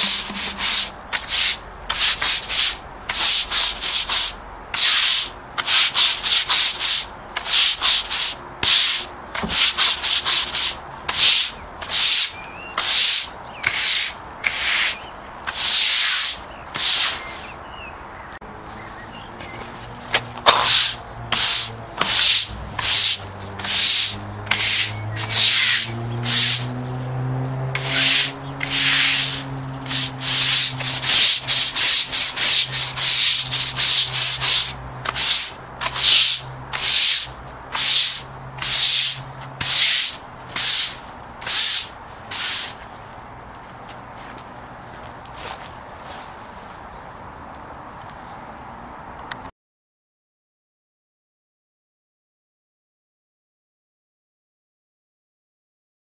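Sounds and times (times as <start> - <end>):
push broom scrubbing wet concrete: 0.0 - 17.5, 20.2 - 26.8, 27.7 - 42.8.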